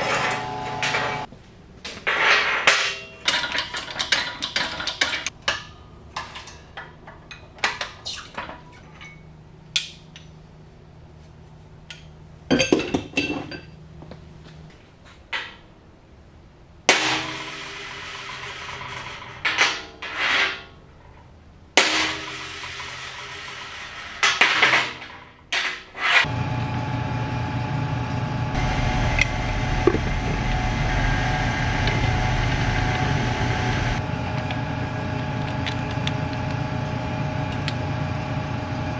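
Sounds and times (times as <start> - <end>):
electric machine motor hum: 26.3 - 38.9.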